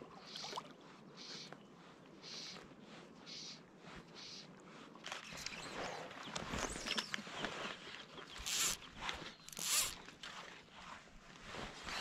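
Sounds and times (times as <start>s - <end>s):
rustle of gloves and clothing: 0.2s - 12.0s
fly line zipping through guides: 8.4s - 10.1s.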